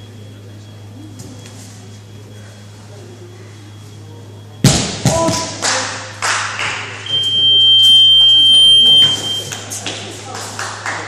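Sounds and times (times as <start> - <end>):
long high-pitched buzzer beep: 7.0 - 9.6.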